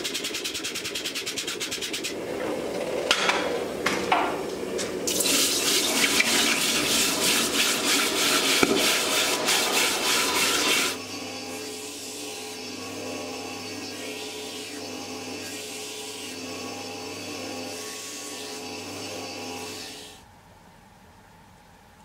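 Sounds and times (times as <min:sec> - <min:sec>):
brush scraping steel: 0:00.0 - 0:02.2, 0:05.4 - 0:11.0.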